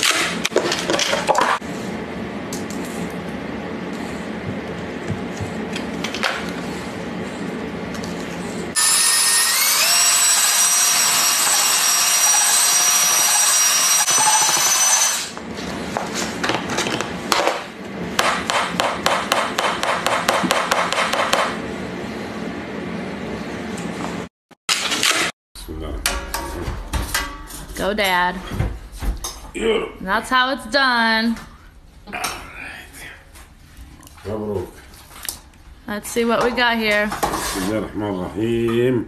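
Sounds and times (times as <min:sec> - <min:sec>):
paddle mixer motor whine: 0:08.7 - 0:15.4.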